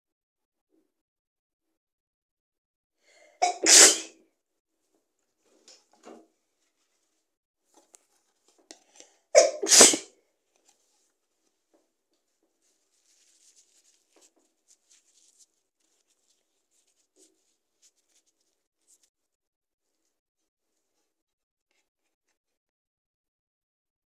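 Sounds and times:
woman sneezing: 3.4 - 4.1, 9.4 - 10.1.

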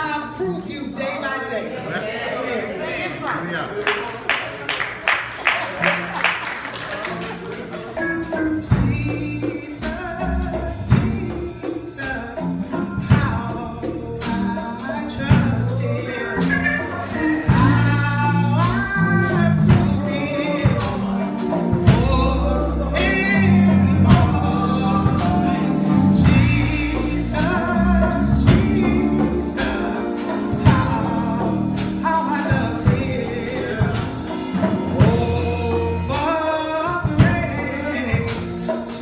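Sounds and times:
hand percussion and drums: 7.1 - 39.0
electric bass guitar: 8.1 - 39.0.

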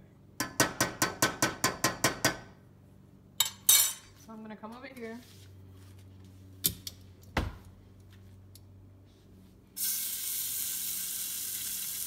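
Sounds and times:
chicken sizzling in hot oil: 9.8 - 12.0.

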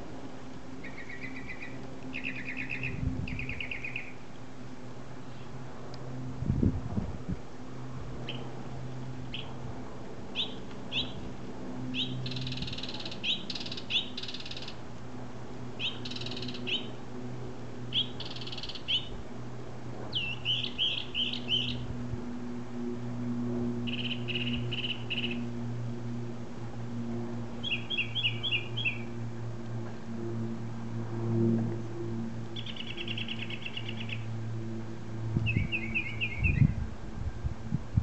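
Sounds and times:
steady low hum: 0.0 - 38.0
songbird calling: 0.8 - 4.2, 8.2 - 8.5, 9.3 - 9.6, 10.3 - 11.3, 11.9 - 14.8, 15.8 - 17.0, 17.9 - 19.2, 20.1 - 21.9, 23.9 - 25.4, 27.6 - 29.1, 32.5 - 34.3, 35.4 - 36.8.

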